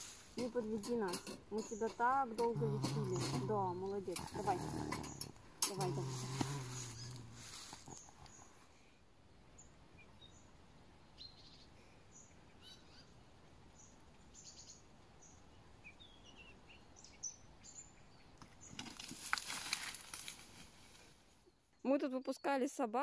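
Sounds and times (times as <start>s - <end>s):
rustling in dry leaves: 0.0s - 0.9s, 4.3s - 8.4s, 18.6s - 21.4s
small birds chirping: 0.0s - 19.2s.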